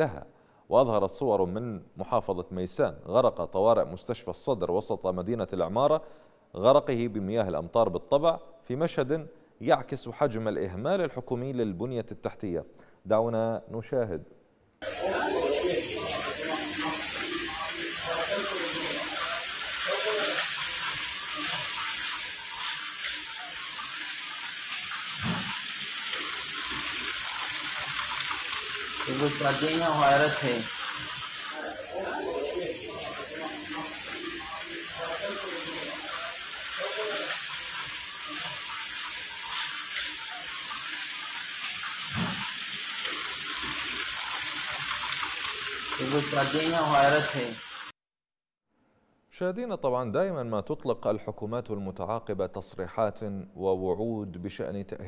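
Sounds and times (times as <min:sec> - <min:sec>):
water running on tiled floor: 0:14.8 - 0:47.9.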